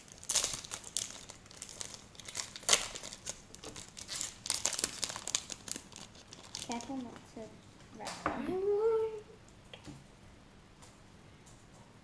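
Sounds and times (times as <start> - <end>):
card wrappers crinkling and tearing: 0.0 - 7.2.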